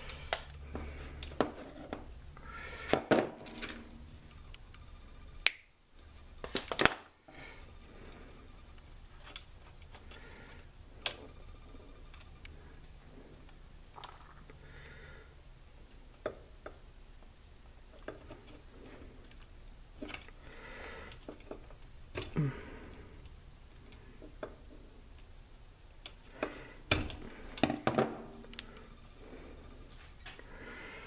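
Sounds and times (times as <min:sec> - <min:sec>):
faint low hum: 0:00.0 - 0:31.0
pliers and wires clicking on metal: 0:08.7 - 0:10.1, 0:25.9 - 0:27.8, 0:28.4 - 0:28.8.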